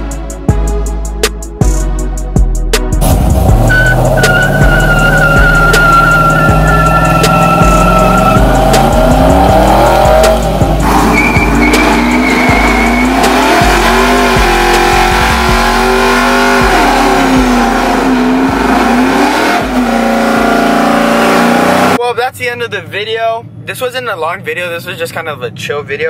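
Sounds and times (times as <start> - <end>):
pickup engine revving hard: 3.0 - 22.0
tyres squealing: 3.6 - 22.0.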